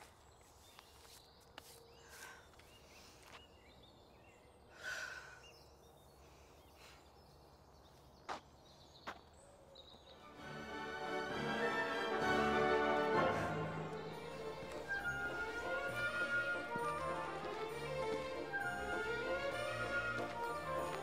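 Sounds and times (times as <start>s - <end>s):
person exhaling: 4.7s - 5.4s
music: 10.2s - 21.0s.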